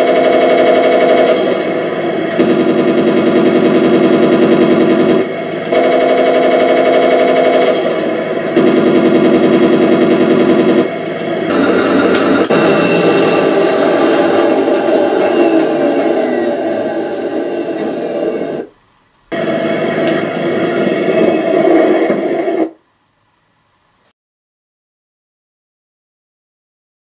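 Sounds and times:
machine-gun sound effects: 0:00.0 - 0:18.7.

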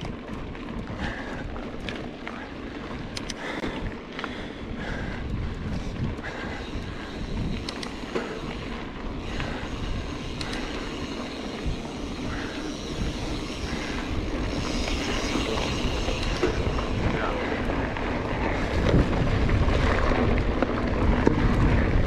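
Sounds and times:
bike rattling: 0:00.0 - 0:22.0
bike tyres rumbling on dirt: 0:00.0 - 0:22.0
sharp clicks: 0:03.0 - 0:03.4, 0:07.4 - 0:08.2, 0:10.3 - 0:10.9
wind on microphone: 0:04.6 - 0:22.0.

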